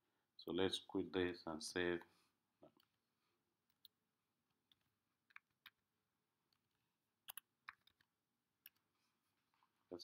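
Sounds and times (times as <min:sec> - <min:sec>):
keystrokes on computer keyboard: 0:04.6 - 0:05.9, 0:06.5 - 0:08.9.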